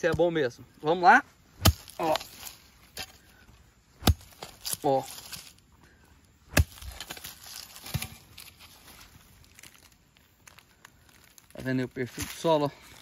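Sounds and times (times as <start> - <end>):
dirt scraping and crumbling: 0.0 - 13.0
hoe chopping into soil: 1.6 - 3.2, 4.0 - 5.5, 6.5 - 8.6.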